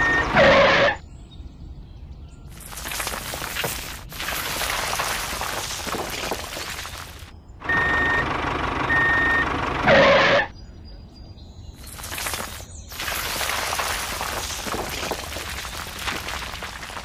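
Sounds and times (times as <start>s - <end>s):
truck engine noise: 0.0s - 1.0s, 3.3s - 10.5s
truck reversing beeps: 0.0s - 1.0s, 7.6s - 10.6s
sand pouring: 2.5s - 7.3s, 11.8s - 17.0s.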